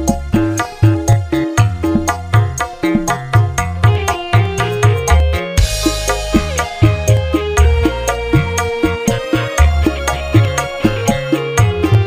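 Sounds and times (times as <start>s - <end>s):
drum hits over backing music: 0.0s - 12.0s.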